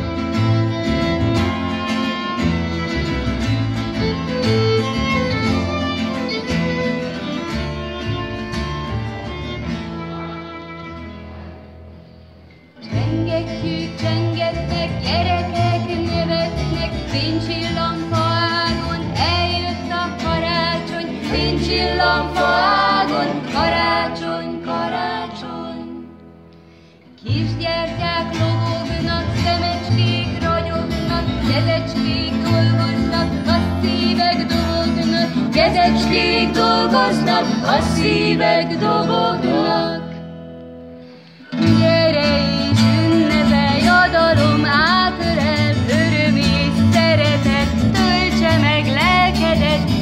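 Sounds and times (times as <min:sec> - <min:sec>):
violin: 0:00.0 - 0:12.0, 0:12.8 - 0:26.1, 0:27.2 - 0:40.3, 0:41.4 - 0:50.0
plucked double bass: 0:00.0 - 0:26.2, 0:27.3 - 0:40.7, 0:41.6 - 0:50.0
strummed acoustic guitar: 0:00.0 - 0:50.0
voices singing together: 0:17.2 - 0:26.1, 0:31.5 - 0:40.2.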